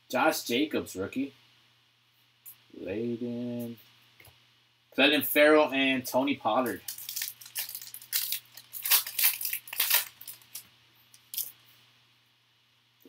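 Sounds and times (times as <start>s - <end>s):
foil wrapper crinkling: 6.7s - 11.6s.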